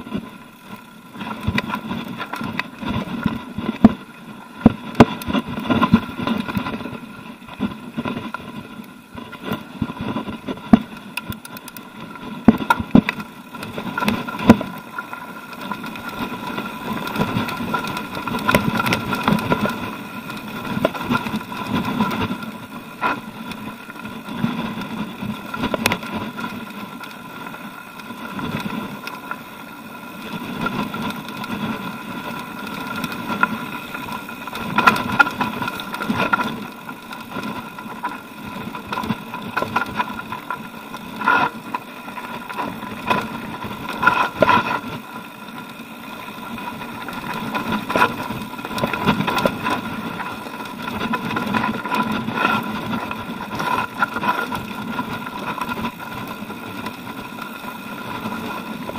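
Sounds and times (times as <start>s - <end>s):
bike rattling and knocking: 14.0s - 27.2s.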